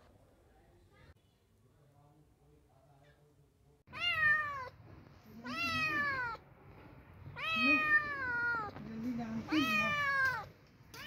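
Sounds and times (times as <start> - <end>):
cat meowing: 3.9 - 4.8, 5.4 - 6.4, 7.3 - 8.8, 9.5 - 11.0.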